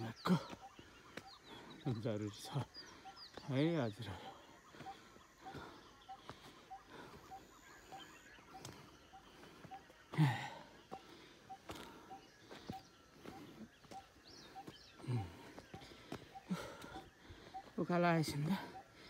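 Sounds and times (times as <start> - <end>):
footsteps on stone and dirt trail: 0.0 - 19.0
person breathing: 8.7 - 13.7, 14.4 - 17.8.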